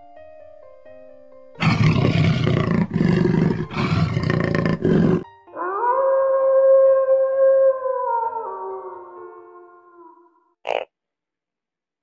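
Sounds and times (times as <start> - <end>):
big cat roaring: 1.6 - 5.2.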